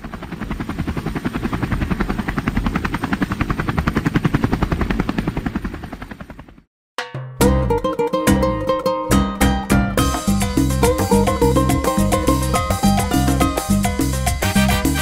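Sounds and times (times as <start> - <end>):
helicopter rotor chopping: 0.0 - 6.7
guitar music: 7.1 - 15.0.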